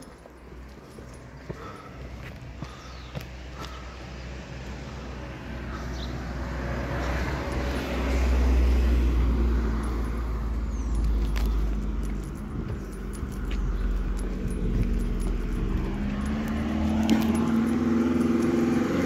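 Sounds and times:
car driving past: 0:14.8 - 0:19.0.

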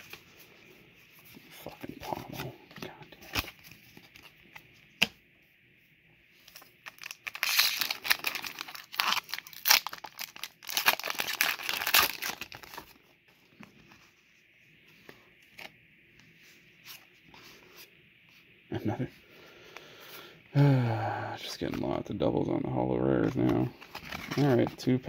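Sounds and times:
foil wrapper tearing and crinkling: 0:06.5 - 0:12.9.

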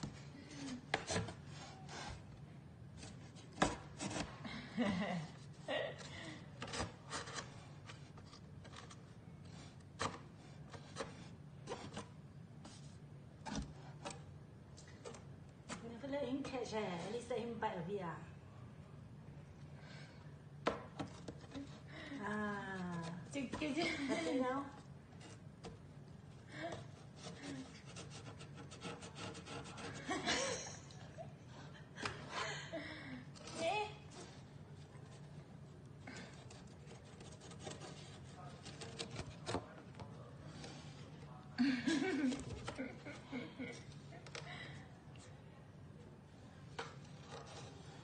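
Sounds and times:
cat scratching cardboard box: 0:00.0 - 0:04.4, 0:06.6 - 0:17.0, 0:26.8 - 0:30.3, 0:36.1 - 0:41.0, 0:46.8 - 0:48.0
faint steady hum: 0:00.0 - 0:48.0.

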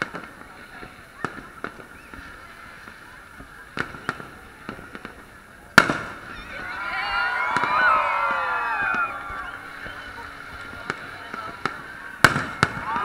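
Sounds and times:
crowd murmur: 0:00.0 - 0:13.0
fireworks bangs: 0:00.0 - 0:13.0
loud firework boom: 0:08.6 - 0:13.0.

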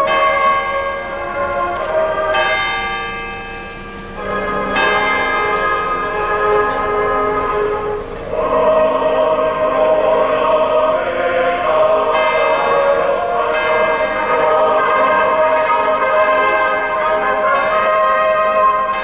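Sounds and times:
choral music with orchestra: 0:00.0 - 0:19.0
church bells ringing: 0:00.0 - 0:19.0.

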